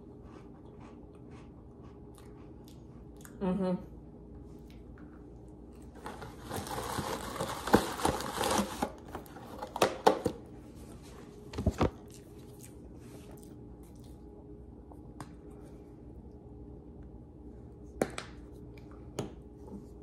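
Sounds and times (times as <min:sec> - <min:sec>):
crinkling rustling: 0:06.0 - 0:09.8.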